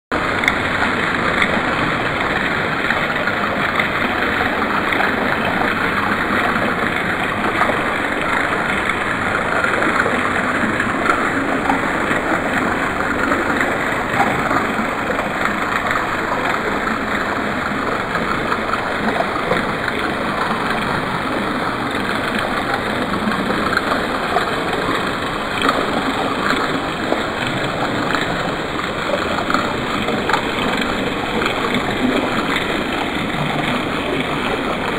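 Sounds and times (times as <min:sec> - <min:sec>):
fountain water splashing: 0:00.1 - 0:34.9.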